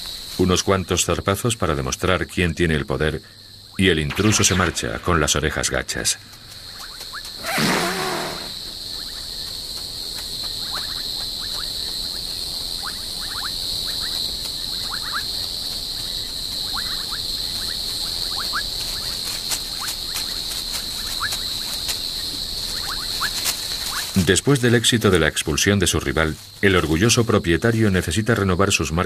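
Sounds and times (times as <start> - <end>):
high-pitched insect chorus: 0.0 - 29.0
short chirping calls: 6.7 - 8.6.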